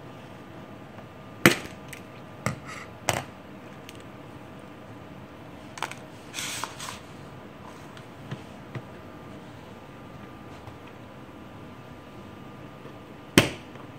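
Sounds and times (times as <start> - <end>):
paper rustling: 5.8 - 8.1.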